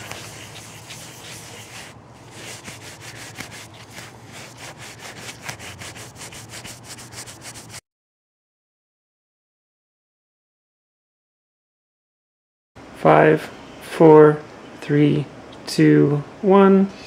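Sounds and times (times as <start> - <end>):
cloth scrubbing circuit board: 0.0 - 7.8.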